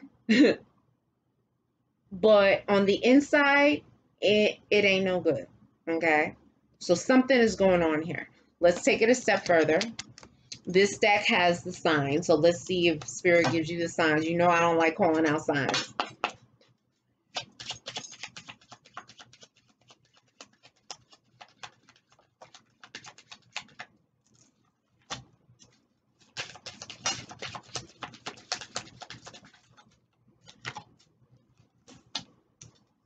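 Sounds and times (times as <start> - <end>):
cards being shuffled: 17.4 - 32.9.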